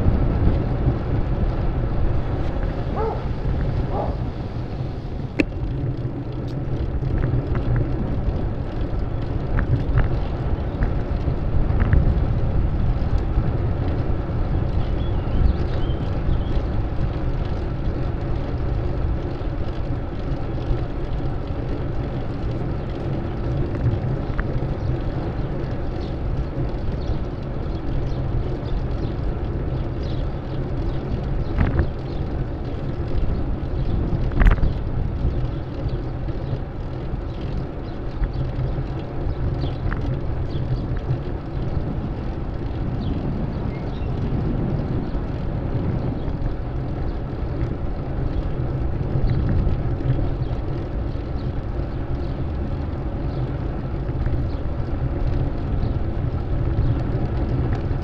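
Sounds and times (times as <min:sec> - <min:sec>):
street traffic: 0:00.0 - 0:58.0
wind buffeting microphone: 0:00.0 - 0:58.0.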